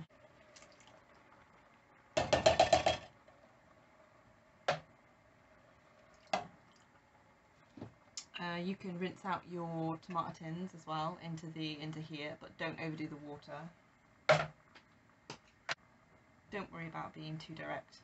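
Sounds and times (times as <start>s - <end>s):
metallic knocks: 2.2s - 3.1s
tins tapping on metal pot: 2.2s - 3.1s.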